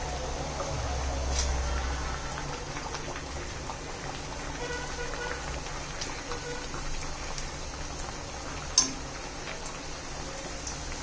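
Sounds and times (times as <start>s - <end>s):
deep-frying in hot oil sizzling: 0.0s - 11.0s.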